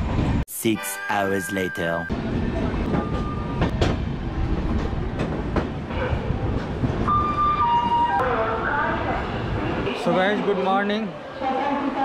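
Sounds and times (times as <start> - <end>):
high tones: 0.5 - 2.2
train wheels rumbling on rails: 2.2 - 8.0.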